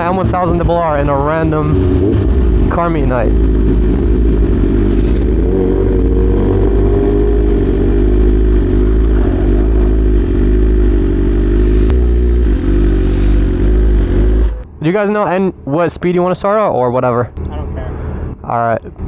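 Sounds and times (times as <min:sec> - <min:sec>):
motorcycle engine running: 0:00.0 - 0:14.7.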